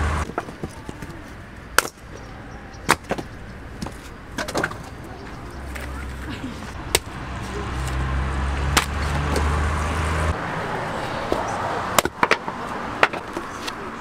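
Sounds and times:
vehicle engine rumble: 0.0 - 14.0
axe chopping firewood: 1.8 - 2.0, 2.9 - 4.8, 6.8 - 7.2, 8.6 - 9.6, 11.2 - 13.4.

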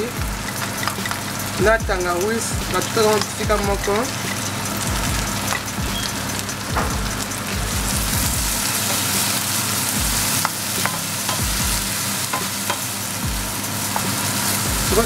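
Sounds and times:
onions sizzling in hot oil: 0.0 - 15.0
wooden spoon clicking on pan: 12.3 - 12.9.

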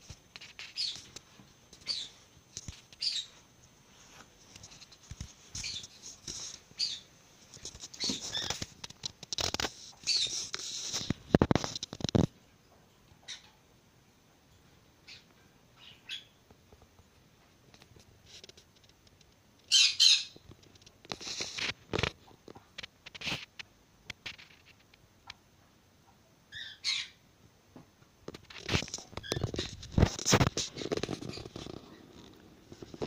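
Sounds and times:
bird chirping: 0.6 - 1.1, 1.8 - 2.2, 3.0 - 3.4, 6.8 - 7.1, 10.0 - 10.4, 13.2 - 13.6, 15.0 - 16.4, 19.7 - 20.4, 26.5 - 27.2
rustling and knocking: 27.8 - 33.0.

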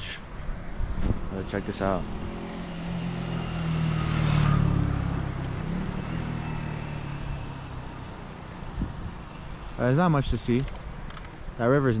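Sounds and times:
vehicle engine passing by: 0.8 - 10.0.

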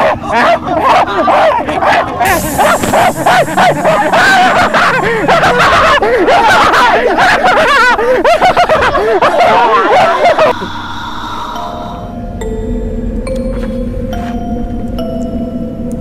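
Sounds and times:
people shouting and yelling: 0.0 - 10.6
snickering laughter: 0.0 - 10.8.

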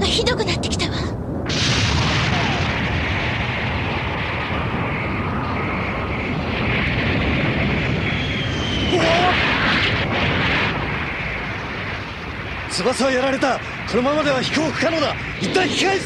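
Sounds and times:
dense rumble with hiss: 0.0 - 16.0
jet aircraft flying: 0.8 - 16.0.

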